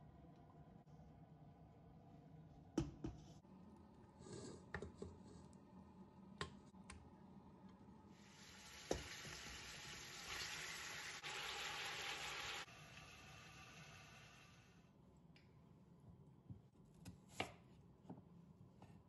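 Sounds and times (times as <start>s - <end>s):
meat sizzling in oil: 8.2s - 14.7s.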